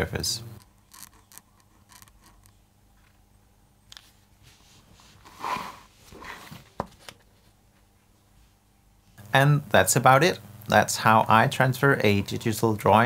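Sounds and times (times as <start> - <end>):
linoleum sheet scraping: 4.4 - 6.7.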